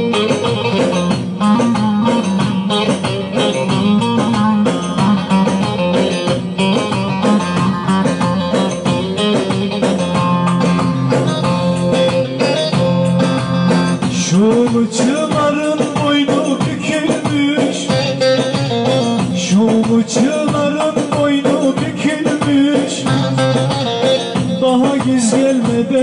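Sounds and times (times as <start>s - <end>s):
person singing: 14.0s - 26.0s.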